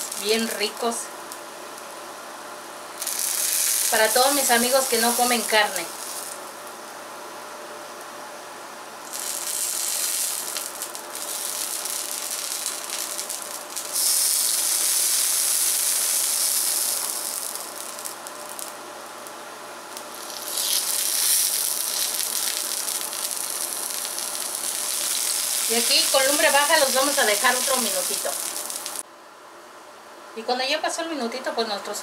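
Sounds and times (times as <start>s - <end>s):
food frying in oil: 0.0s - 2.0s, 2.9s - 6.7s, 9.0s - 29.0s.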